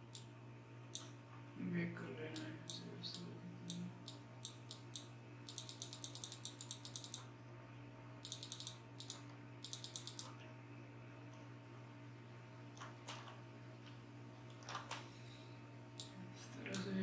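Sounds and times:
low electrical hum: 0:00.0 - 0:17.0
computer mouse clicks: 0:00.9 - 0:01.1, 0:02.7 - 0:07.3, 0:08.2 - 0:10.4.

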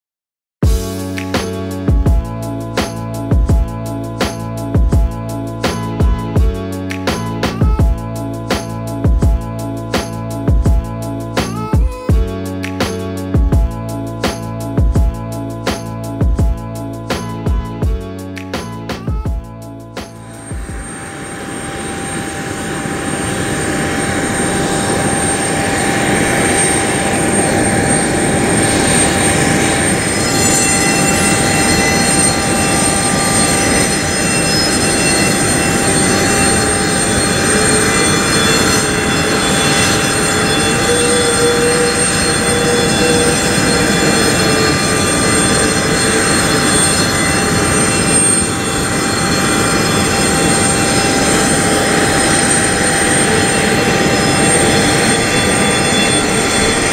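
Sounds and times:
high whining tones: 0:18.6 - 0:56.9
jet engine starting up: 0:20.0 - 0:56.9.

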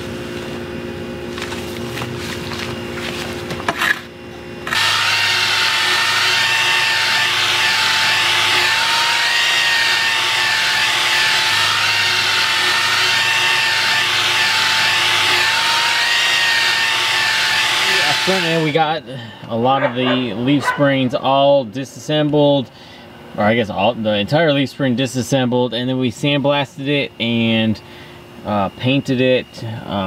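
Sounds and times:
angle grinder on steel: 0:04.7 - 0:18.8
faint steady hum: 0:18.3 - 0:30.0.

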